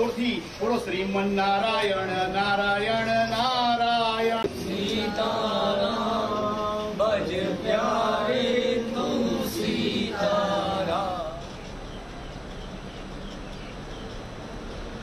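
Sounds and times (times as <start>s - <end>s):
group chanting a prayer: 0.0s - 11.6s.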